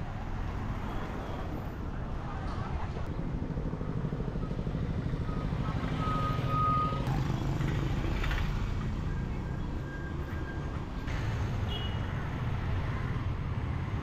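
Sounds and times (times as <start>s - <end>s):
high steady beep: 5.2s - 7.0s.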